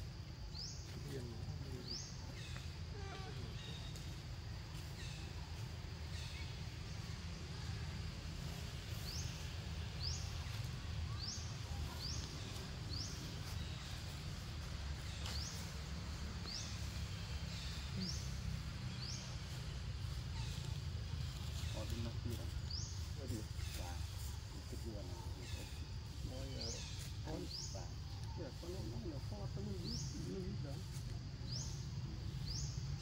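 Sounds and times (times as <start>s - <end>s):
bird chirping: 8.9s - 33.0s.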